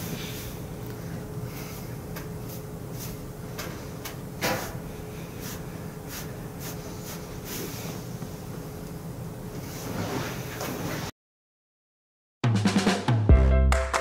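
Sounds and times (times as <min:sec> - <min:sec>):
faint steady hum: 0:00.0 - 0:11.0
fabric swishing: 0:09.6 - 0:11.1.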